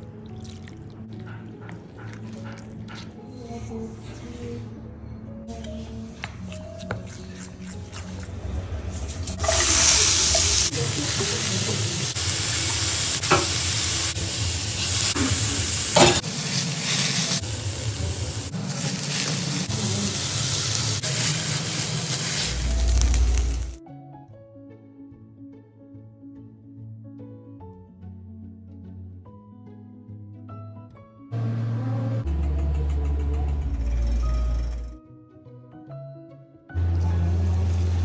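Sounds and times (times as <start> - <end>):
background music: 0.0 - 16.2, 21.1 - 38.0
vegetables sizzling in hot oil: 9.4 - 23.8.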